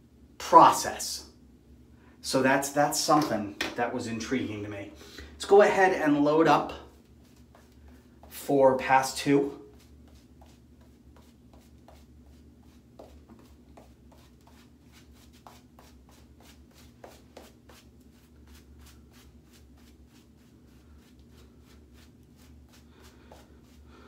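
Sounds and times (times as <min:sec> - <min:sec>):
shaving brush strokes on face: 0:06.9 - 0:23.9.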